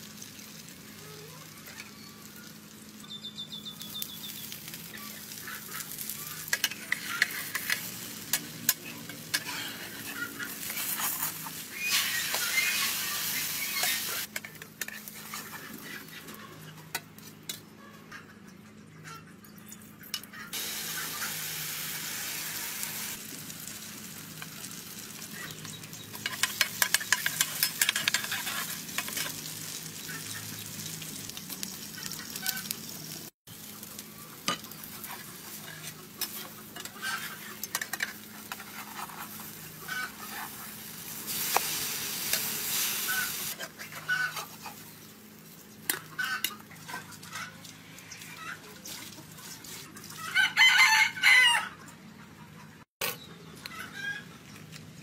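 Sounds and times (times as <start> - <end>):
batter sizzling in oil: 0.0 - 16.2, 20.5 - 50.3
chickens clucking: 4.8 - 21.6, 31.8 - 32.8, 34.2 - 40.8, 41.4 - 45.1, 45.8 - 54.7
metal spatula scraping pan: 6.5 - 16.0, 26.2 - 29.4, 34.5 - 44.8.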